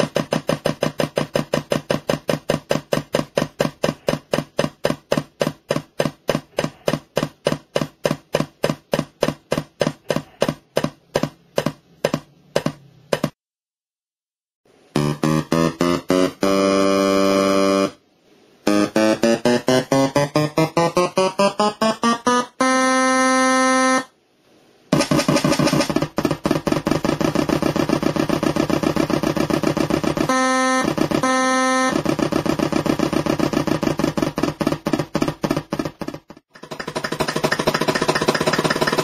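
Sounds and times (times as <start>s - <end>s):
horn blasts from speaker: 22.6s - 24.1s, 30.3s - 32.0s.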